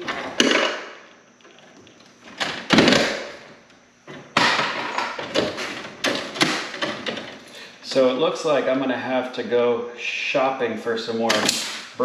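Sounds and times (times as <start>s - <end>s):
tools and parts knocking: 4.1s - 7.4s.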